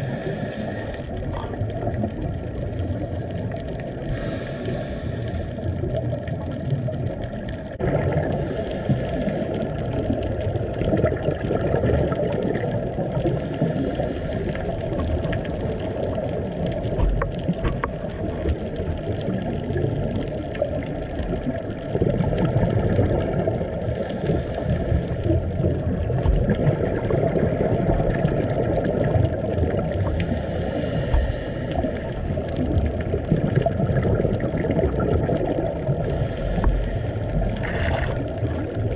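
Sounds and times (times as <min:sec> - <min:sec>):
underwater rushing of water: 0:00.0 - 0:38.9
faint clicks: 0:13.6 - 0:21.9.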